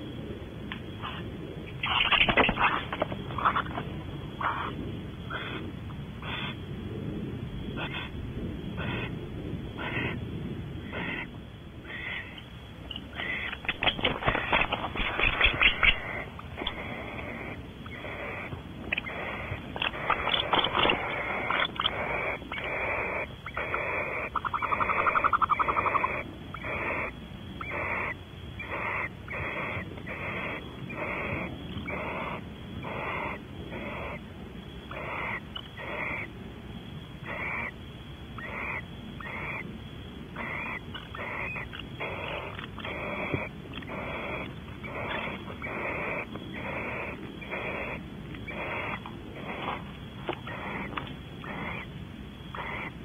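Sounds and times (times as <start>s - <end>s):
owl hissing snore calls: 1.0s - 3.8s, 4.4s - 6.6s, 7.7s - 10.2s, 10.8s - 12.4s, 13.1s - 34.3s, 34.9s - 36.3s, 37.2s - 37.8s, 38.4s - 39.7s, 40.3s - 51.9s, 52.5s - 53.0s.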